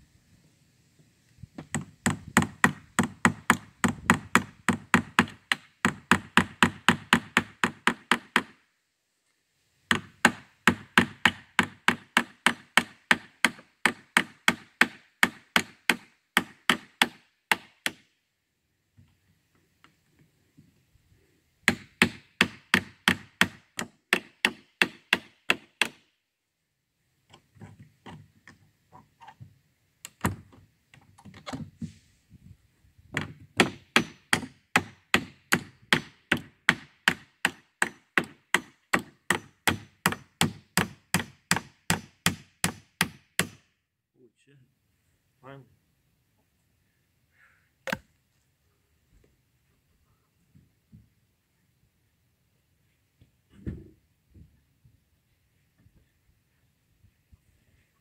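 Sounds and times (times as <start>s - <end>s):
hammer pounding on wood: 1.6s - 8.6s, 9.9s - 18.1s, 21.7s - 26.0s, 33.2s - 43.6s.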